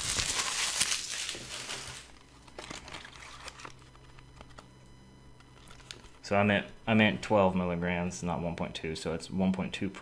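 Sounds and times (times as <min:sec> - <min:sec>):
bubble wrap crinkling: 0:00.0 - 0:04.0.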